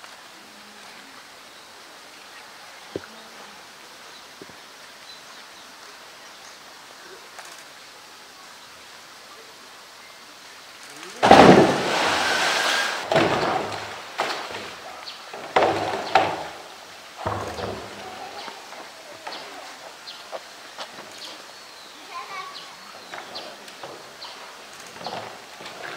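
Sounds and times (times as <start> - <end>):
churning water: 11.0 - 20.3
loud splash: 11.2 - 15.0.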